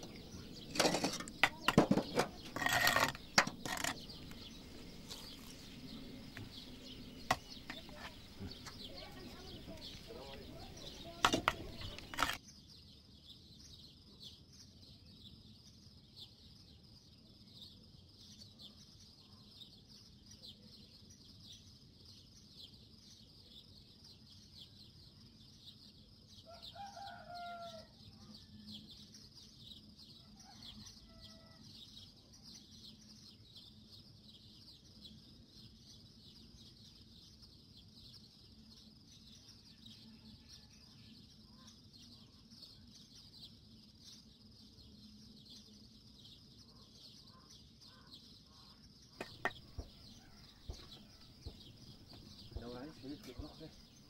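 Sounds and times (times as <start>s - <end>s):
sharp knock: 49.2s - 52.7s.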